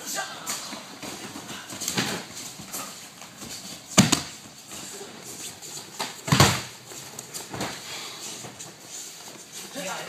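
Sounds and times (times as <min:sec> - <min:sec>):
bodies thudding on a mat: 0:03.9 - 0:04.6, 0:06.0 - 0:06.8.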